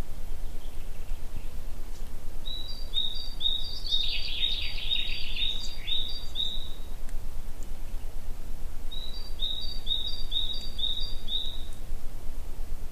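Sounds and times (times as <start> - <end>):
songbird singing high notes: 2.4 - 6.9, 8.9 - 11.8.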